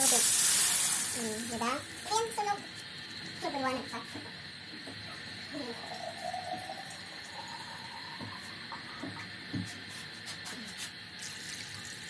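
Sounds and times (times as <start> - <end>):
meat sizzling in oil: 0.0 - 4.6, 9.7 - 12.0.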